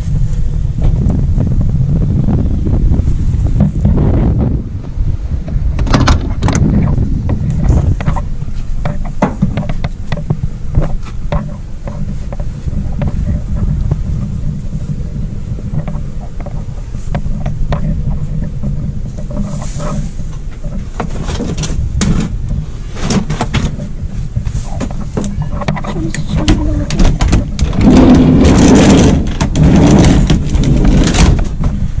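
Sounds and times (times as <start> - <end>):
wind buffeting microphone: 0.0 - 32.0
clicks and knocks: 24.7 - 31.8.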